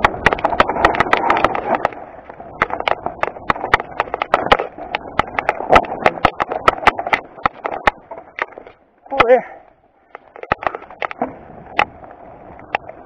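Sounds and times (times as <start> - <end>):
rough rushing noise: 0.0 - 8.9
bike knocking and rattling on stones: 0.0 - 13.0.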